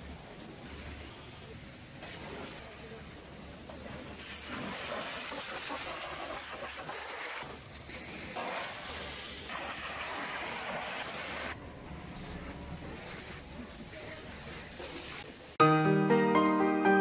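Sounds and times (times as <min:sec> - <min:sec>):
pressure washer spraying water: 0:04.2 - 0:11.6.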